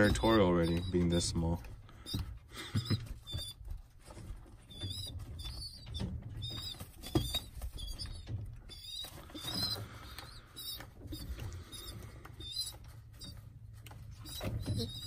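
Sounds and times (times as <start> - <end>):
young pigeon squeaking: 0.0 - 15.0.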